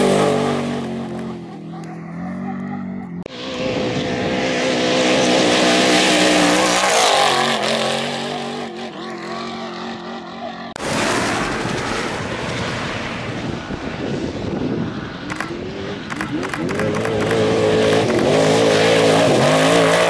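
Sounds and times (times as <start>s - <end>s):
race truck engine passing: 0.0s - 14.0s, 14.7s - 20.0s
loud steady rushing noise: 10.7s - 20.0s.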